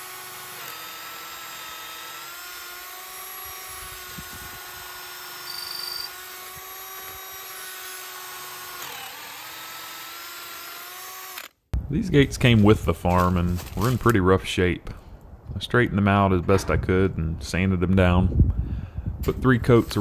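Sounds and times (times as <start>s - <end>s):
power drill boring into wood: 0.0s - 11.6s
thin drill squeal: 5.1s - 6.2s.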